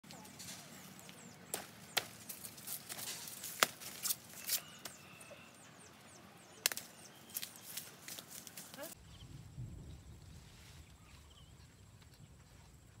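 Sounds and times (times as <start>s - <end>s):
birds chirping: 0.0s - 9.4s.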